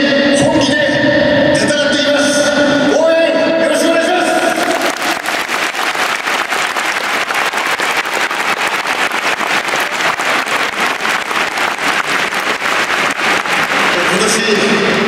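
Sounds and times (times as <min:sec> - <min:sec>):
stadium crowd applauding: 0:04.3 - 0:15.0.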